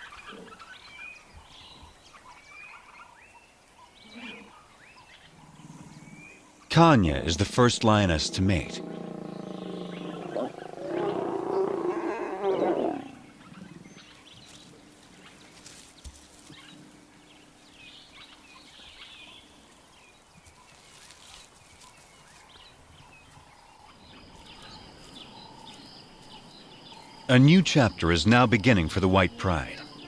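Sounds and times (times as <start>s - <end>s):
lions growling: 5.3s - 14.2s.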